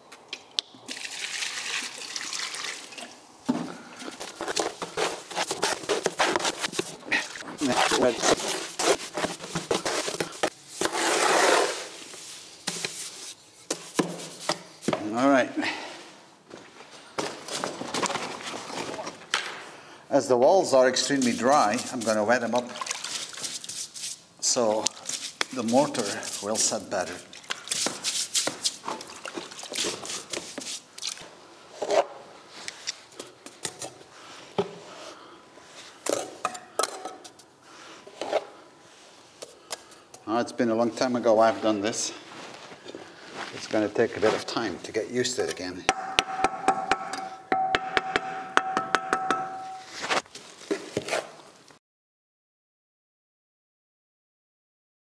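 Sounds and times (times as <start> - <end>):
knocks and scrapes: 3.5 - 15.1
brush swishing water on brick: 4.1 - 14.9, 21.0 - 31.2
steel trowel scraping mortar: 7.6 - 12.1
trowel knocking against plastic tub: 45.9 - 49.8.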